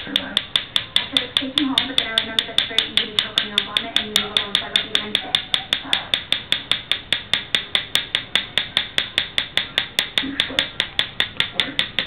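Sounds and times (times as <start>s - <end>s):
sharp rhythmic tapping: 0.0s - 12.0s.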